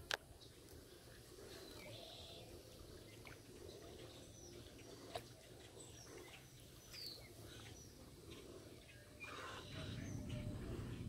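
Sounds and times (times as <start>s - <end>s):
faint bird chirps: 0.4s - 11.0s.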